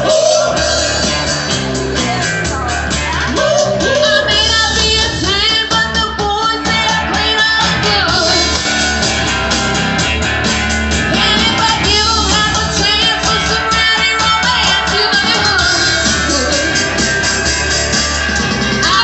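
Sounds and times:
lead singer singing: 0:00.0 - 0:01.4, 0:02.0 - 0:08.7, 0:11.1 - 0:17.0
bass guitar: 0:00.0 - 0:19.0
drum kit: 0:00.0 - 0:19.0
electric guitar: 0:00.0 - 0:19.0
keyboard: 0:00.0 - 0:19.0.

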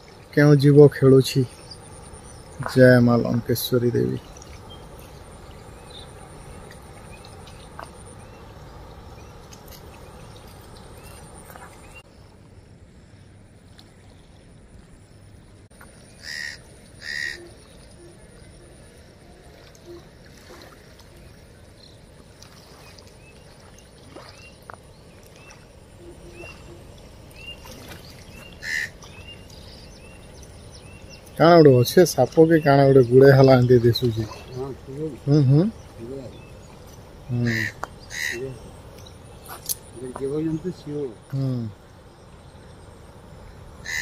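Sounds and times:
quiet outdoor background noise: 0:00.0 - 0:44.0
faint chirps: 0:21.0 - 0:44.0.

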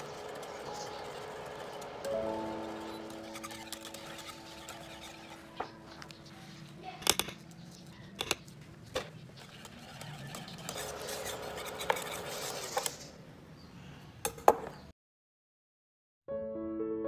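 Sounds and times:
whisk swishing in custard: 0:02.7 - 0:05.6, 0:09.5 - 0:13.0.

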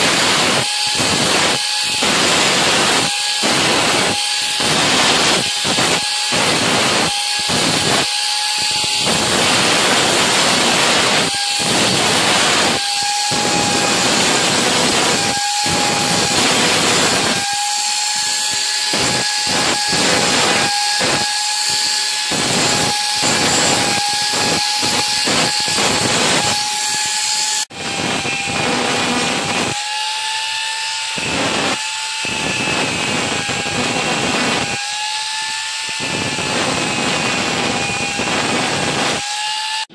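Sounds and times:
angle grinder grinding metal: 0:00.0 - 0:39.9.

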